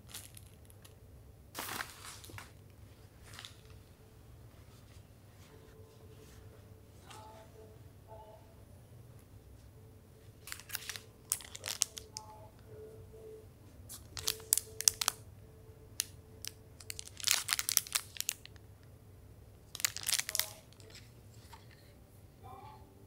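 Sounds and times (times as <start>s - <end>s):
plastic packaging crinkling: 1.6s - 2.6s, 10.4s - 12.3s, 13.9s - 15.2s, 16.0s - 18.6s, 19.7s - 21.1s.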